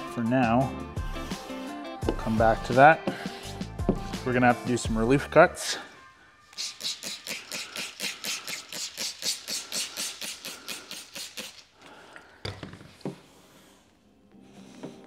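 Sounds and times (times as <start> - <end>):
spray bottle squirting: 6.5 - 11.9.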